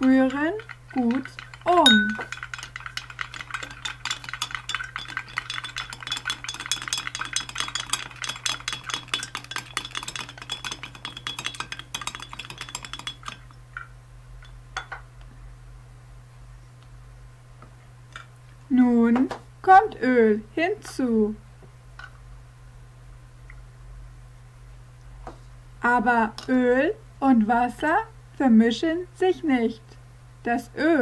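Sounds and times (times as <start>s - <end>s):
stick tapping glass vase: 0.0s - 13.4s.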